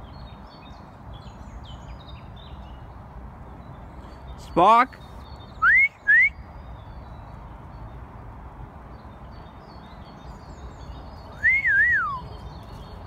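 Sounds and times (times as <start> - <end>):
faint birds chirping: 0.0 - 13.0
person whistling: 5.6 - 6.3, 11.4 - 12.2.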